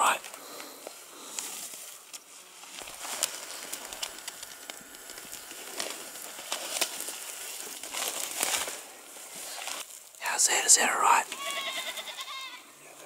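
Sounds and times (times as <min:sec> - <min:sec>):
grass and scrub rustling underfoot: 0:00.0 - 0:13.0.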